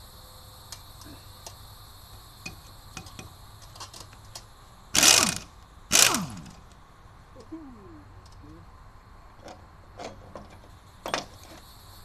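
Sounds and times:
air impact wrench burst: 0:04.9 - 0:06.7.

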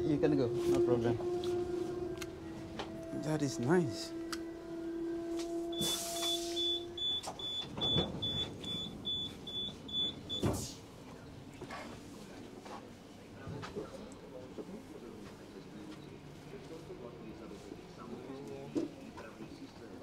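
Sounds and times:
train door warning beeps: 0:05.7 - 0:10.8.

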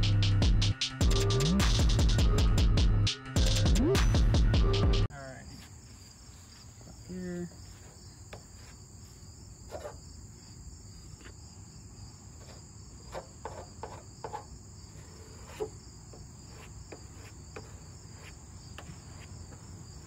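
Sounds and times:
insects chirring: 0:05.1 - 0:20.0.

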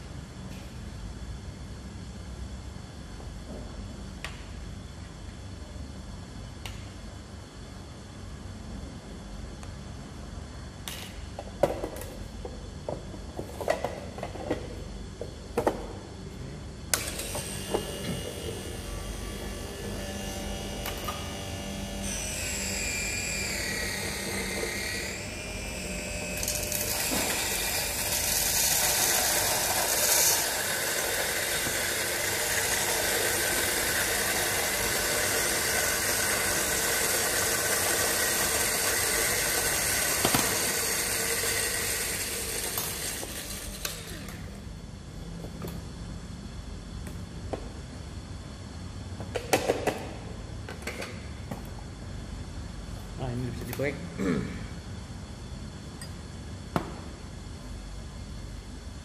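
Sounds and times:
electric coffee grinder running: 0:17.0 - 0:44.4.

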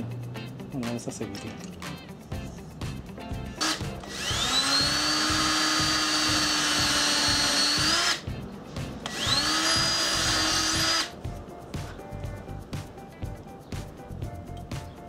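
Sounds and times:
cordless drill whining: 0:03.6 - 0:08.2, 0:09.1 - 0:11.1.

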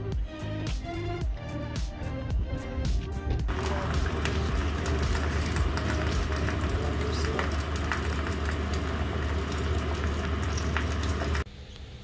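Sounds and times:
noodles sizzling in a frying pan: 0:03.5 - 0:11.5
steady low hum: 0:03.5 - 0:12.0.

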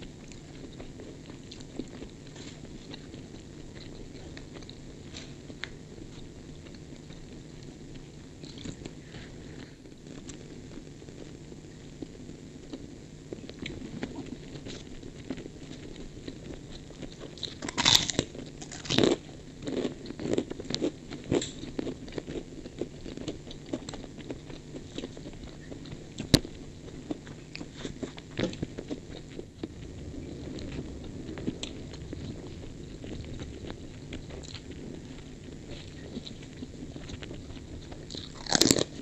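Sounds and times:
chewing crunches: 0:00.1 - 0:10.8, 0:12.7 - 0:39.0
crunching bites of cracker: 0:17.2 - 0:25.3, 0:37.0 - 0:39.0.

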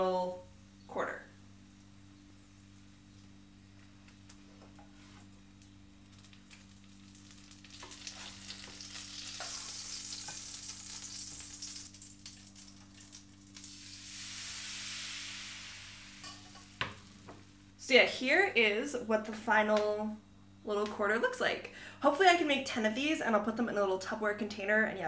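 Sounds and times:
butter sizzling in a pan: 0:05.3 - 0:17.7.

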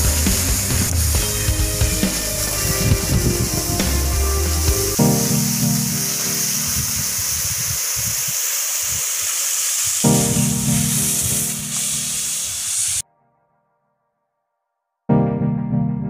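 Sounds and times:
background music: 0:00.0 - 0:06.8, 0:10.0 - 0:11.9
steady hiss: 0:00.0 - 0:13.0.

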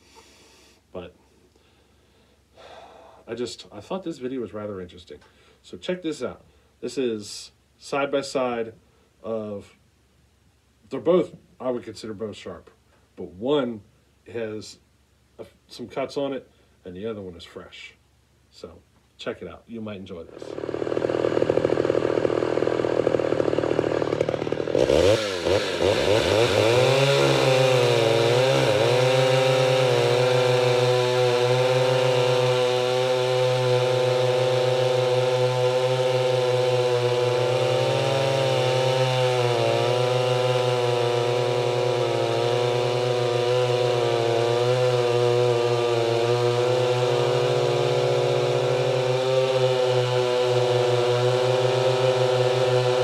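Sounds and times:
chainsaw cutting wood: 0:20.3 - 0:53.0.

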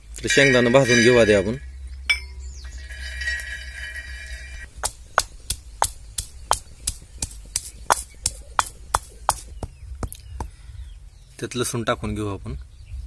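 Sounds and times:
pestle pounding in stone mortar: 0:04.7 - 0:10.6.

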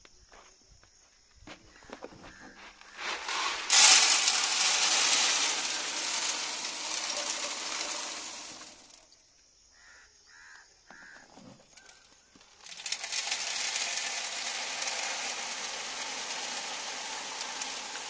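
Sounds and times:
seed pouring into metal box: 0:02.9 - 0:09.1, 0:12.5 - 0:18.0
crow cawing: 0:09.8 - 0:11.3.

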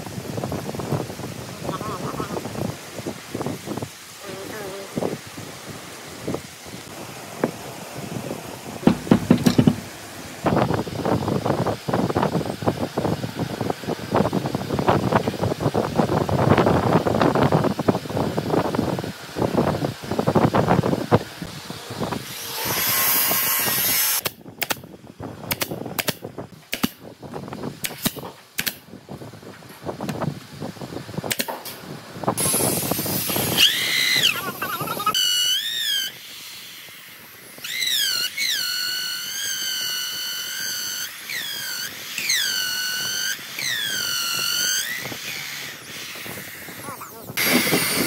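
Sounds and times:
sharp knocks and taps: 0:08.8 - 0:09.9
power tool high whine: 0:22.2 - 0:24.2, 0:37.6 - 0:46.8, 0:47.4 - 0:48.0.

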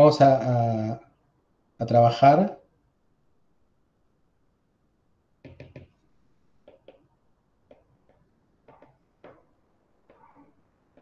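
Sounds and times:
pen tapping on writing tablet: 0:05.4 - 0:06.0, 0:06.6 - 0:07.1, 0:07.7 - 0:09.5.

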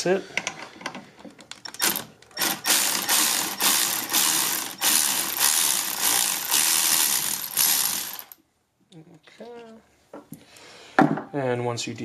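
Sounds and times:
ratchet clicking: 0:01.7 - 0:08.4.

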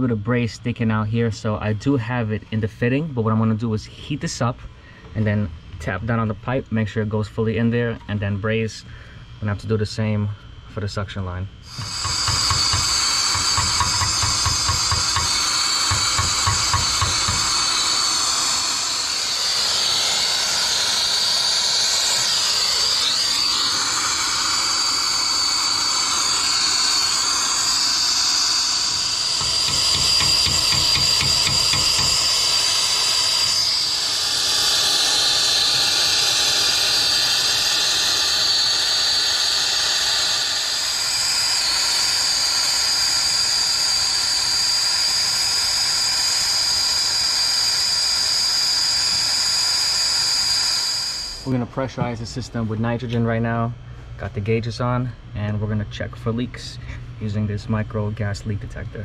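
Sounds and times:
brazing torch flame hissing: 0:11.6 - 0:51.7.

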